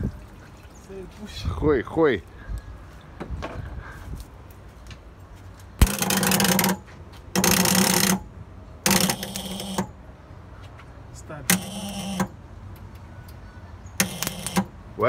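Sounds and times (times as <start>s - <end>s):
starter engaging clunk: 5.8s - 6.8s
starter motor whining: 5.8s - 6.8s, 7.4s - 9.9s, 11.5s - 12.4s, 14.0s - 14.7s.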